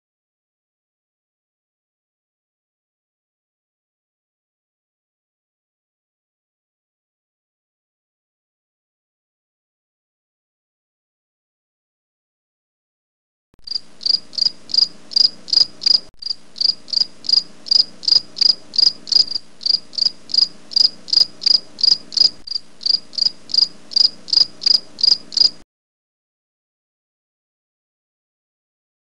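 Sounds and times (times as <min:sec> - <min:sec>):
cricket chirping: 0:13.6 - 0:25.6
faint low hum: 0:13.6 - 0:25.6.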